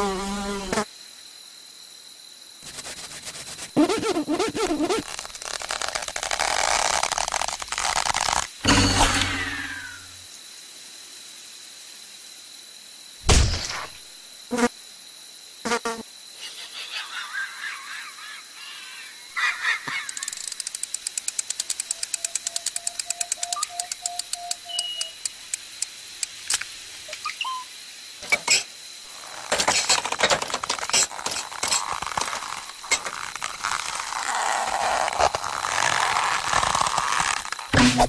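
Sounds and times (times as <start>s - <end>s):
fast run of clicks: 20.0s - 26.7s.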